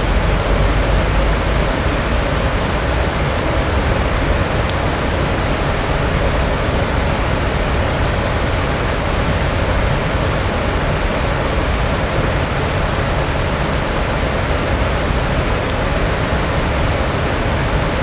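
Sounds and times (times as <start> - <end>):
deep rumble: 0.0 - 2.8
steady rushing noise: 0.0 - 5.1.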